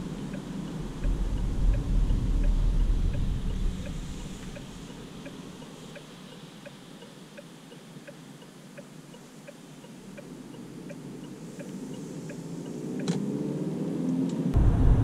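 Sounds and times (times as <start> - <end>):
turn signal ticking: 0.0 - 13.2
car engine accelerating: 11.8 - 15.0.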